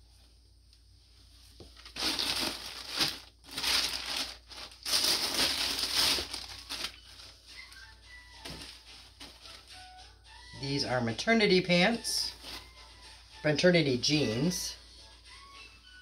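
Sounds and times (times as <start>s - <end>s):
plastic bag crinkling: 1.7s - 9.6s.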